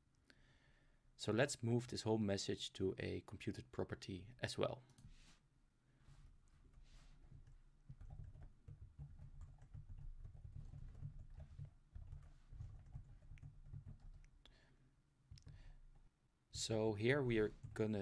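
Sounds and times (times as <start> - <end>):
typing on keyboard: 7.3 - 14.4.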